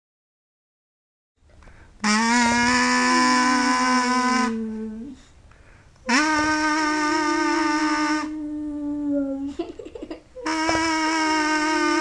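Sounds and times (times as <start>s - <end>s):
kazoo buzzing held notes: 1.7s - 5.2s, 6.0s - 8.6s, 10.4s - 12.0s.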